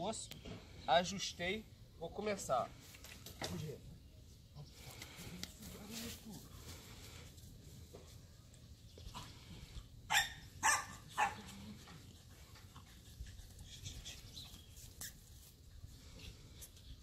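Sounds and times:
dog barking: 10.1 - 11.5.

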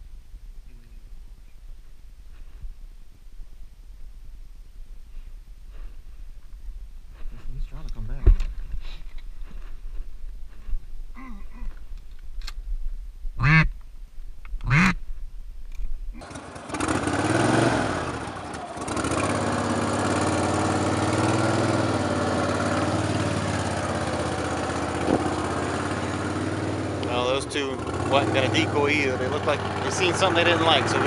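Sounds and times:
duck quacking: 13.4 - 13.7, 14.6 - 15.0.

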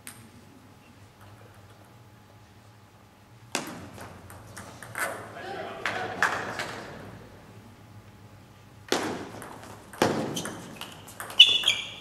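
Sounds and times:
table tennis ball hits: 3.5 - 5.2, 8.9 - 12.0
ball tapping on bats and table: 8.9 - 11.8.

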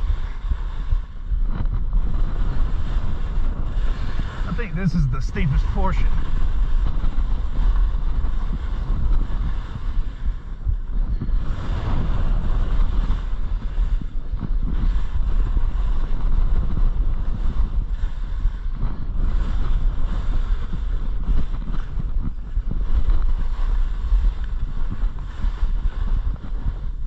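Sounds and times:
wind buffeting microphone: 0.0 - 27.0
skis scraping on snow: 22.6 - 26.9.

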